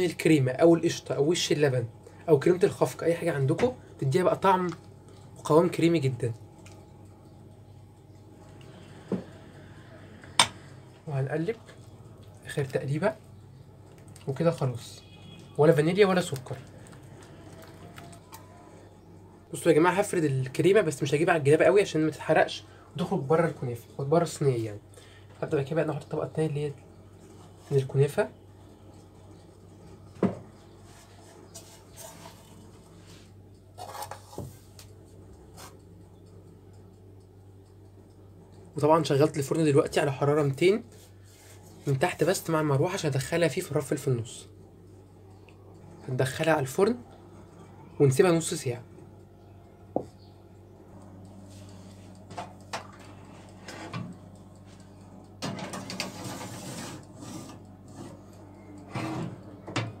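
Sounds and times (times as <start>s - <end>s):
dough rustling: 30.7s - 35.8s
metal pan scraping on oven rack: 55.4s - 58.2s, 58.9s - 59.4s.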